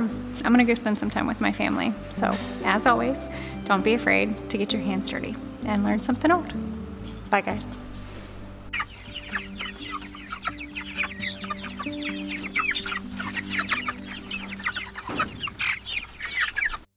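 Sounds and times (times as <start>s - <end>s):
soft background music: 0.0s - 16.8s
chickens calling: 6.0s - 16.9s.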